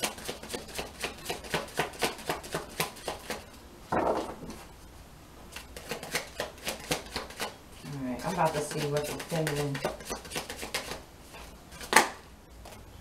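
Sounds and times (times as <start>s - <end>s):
cards being shuffled: 5.5s - 7.5s, 8.2s - 12.8s.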